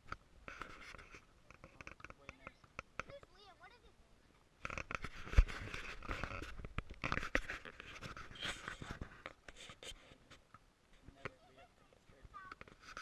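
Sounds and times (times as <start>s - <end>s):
microphone handling noise: 4.6s - 10.4s.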